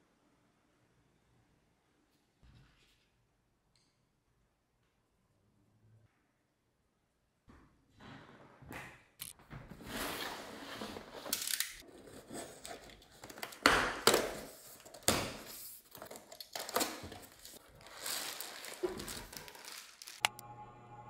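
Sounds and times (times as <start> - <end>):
plastic bag rustling: 10.0 - 20.3
cardboard flaps tearing: 16.0 - 20.3.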